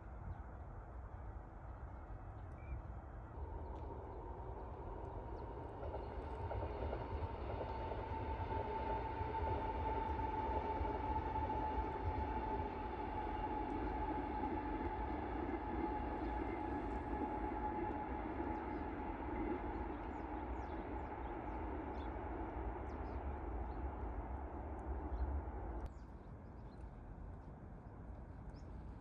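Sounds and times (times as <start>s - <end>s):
outdoor ambience: 0.0s - 29.0s
train rumbling past: 3.1s - 26.0s.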